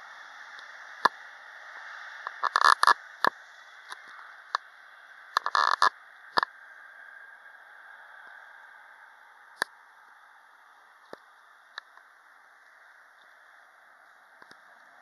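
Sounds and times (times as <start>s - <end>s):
faint jet engine roar: 0.0s - 15.0s.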